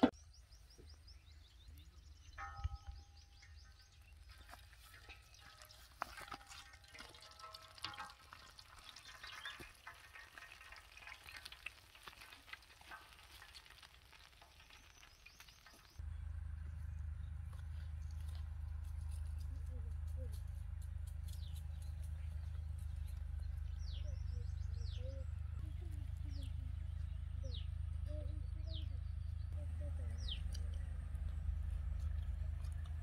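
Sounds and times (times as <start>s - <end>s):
fish frying in hot oil: 6.4s - 16.0s
steady low rumble: 15.9s - 33.0s.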